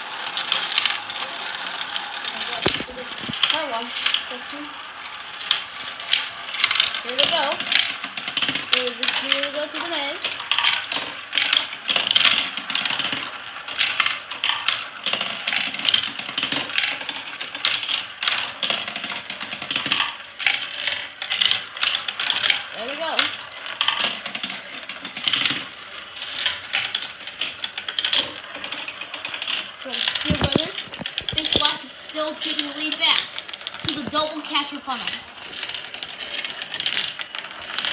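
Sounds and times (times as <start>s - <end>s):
marbles clattering through plastic track: 0.0s - 37.9s.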